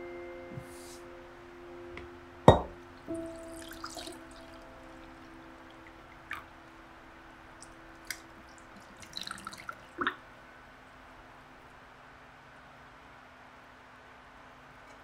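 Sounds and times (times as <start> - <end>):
coffee pouring over ice: 8.8 - 9.9.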